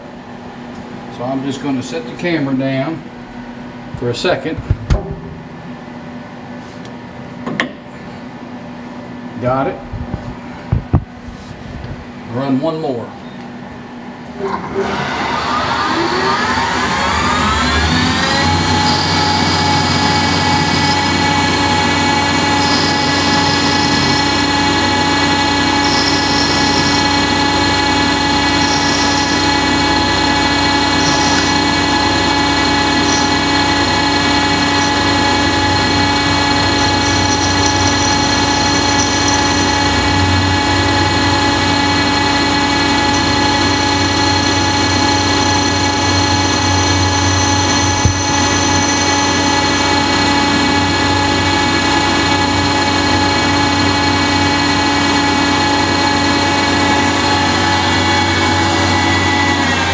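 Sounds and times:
lathe spindle whine: 14.4s - 59.9s.

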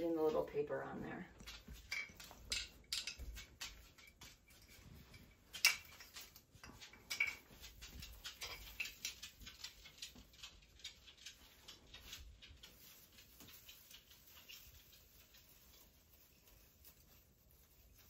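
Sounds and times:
rustling of branches and tinsel: 0.0s - 18.0s
small ornament clicks: 1.3s - 4.4s.

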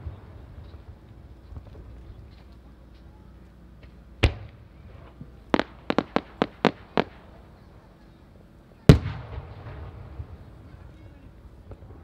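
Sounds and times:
firework report: 0.0s - 12.0s
sharp firework pops: 3.8s - 7.2s, 8.9s - 10.4s
deep firework boom: 8.9s - 10.6s.

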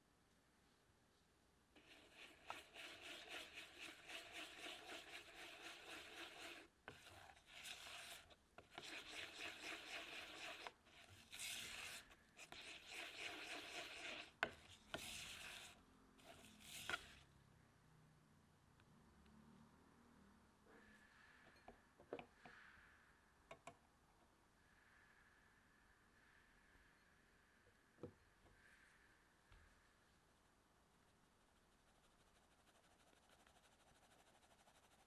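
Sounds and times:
spatula scraping mixing bowl: 1.8s - 17.2s.

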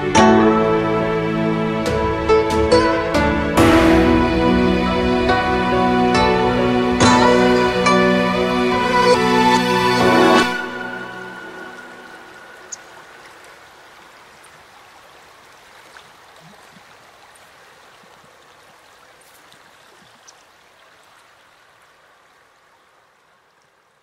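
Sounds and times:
gentle flowing water: 7.0s - 24.0s.

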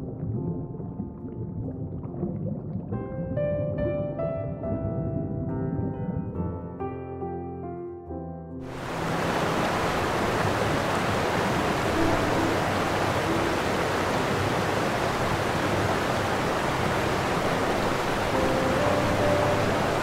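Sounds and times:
sea water rushing: 8.6s - 20.0s
faint background music: 11.8s - 20.0s.

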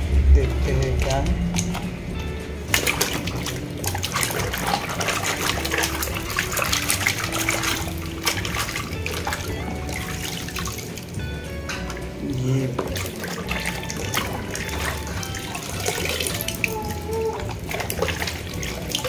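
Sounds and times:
water splashing in a plastic basin: 0.4s - 2.0s, 2.6s - 19.0s.

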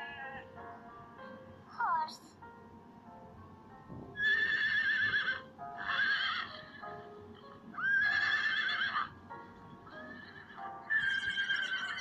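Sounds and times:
light background music: 0.0s - 12.0s
horse whinnying: 4.2s - 6.9s, 7.8s - 9.2s, 10.0s - 12.0s.

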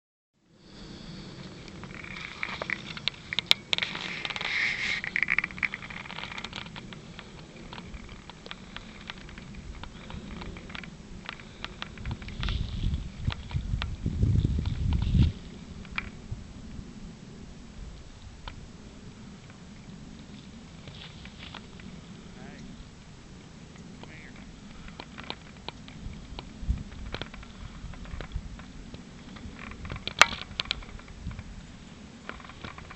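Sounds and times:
faint low rumble: 0.4s - 32.9s
scratching and clicking: 1.4s - 16.2s, 23.8s - 31.5s, 32.2s - 32.9s.

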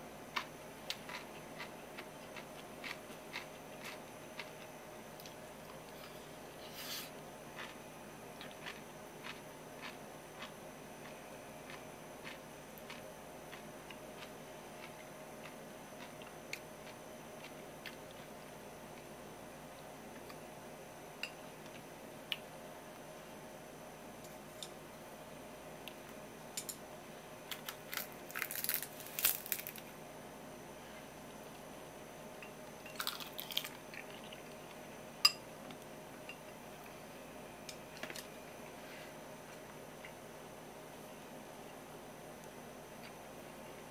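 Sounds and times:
faint steady hum: 0.0s - 43.9s
crackling bite of food: 27.5s - 29.9s, 33.0s - 34.6s.

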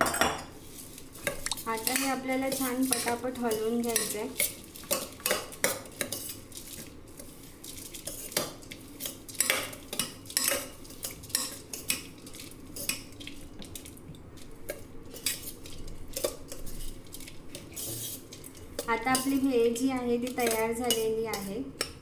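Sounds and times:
puffed rice rustling: 0.6s - 19.8s
spoon clinking and scraping bowl: 1.2s - 7.3s, 8.0s - 12.1s, 14.7s - 22.0s.

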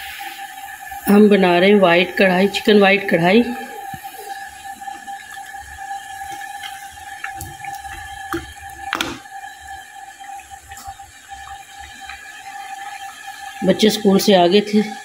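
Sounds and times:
high-pitched hum: 0.0s - 15.0s.

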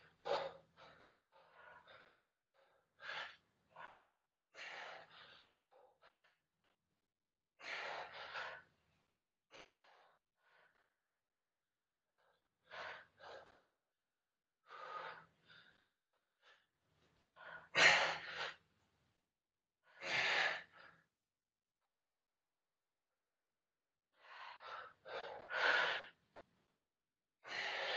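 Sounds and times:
woman breathing hard: 0.0s - 6.2s, 7.6s - 8.8s, 14.6s - 18.6s, 24.1s - 26.5s, 27.4s - 27.9s.

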